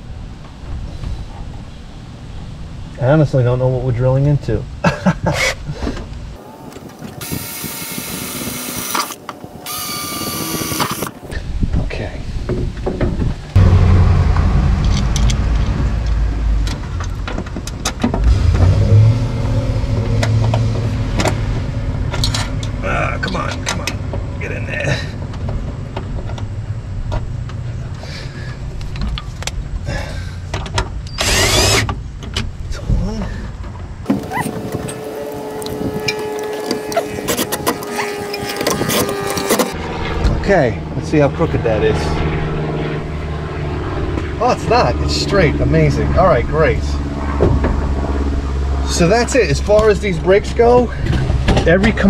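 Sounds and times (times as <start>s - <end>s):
cordless drill drilling into steel: 7.2s - 11.2s, 31.2s - 31.8s
steady low hum: 13.5s - 30.5s, 31.5s - 52.0s.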